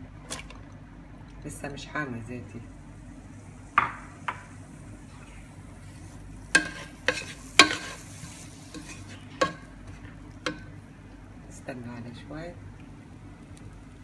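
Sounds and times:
faint onion sizzle: 0:02.0 - 0:14.0
spatula stirring onion in pot: 0:05.8 - 0:10.8
spatula tapping against pan: 0:06.6 - 0:08.0, 0:09.4 - 0:09.6, 0:10.4 - 0:10.7.

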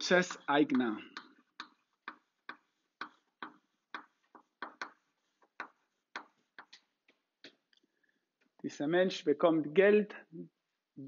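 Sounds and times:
chalk tapping on a blackboard: 0:00.3 - 0:07.6.

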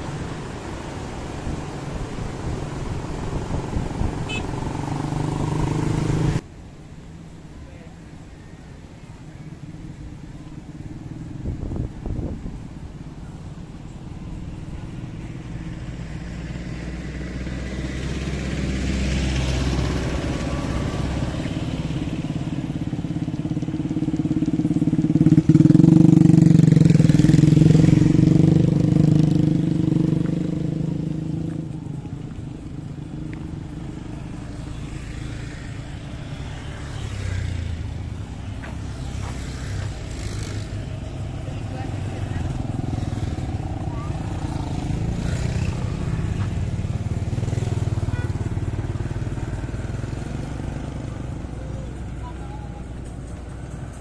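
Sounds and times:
motorcycles and scooters riding past: 0:00.0 - 0:06.4, 0:07.2 - 0:54.0.

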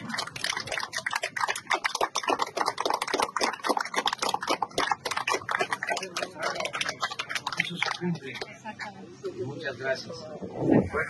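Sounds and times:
people applauding: 0:00.0 - 0:08.6.

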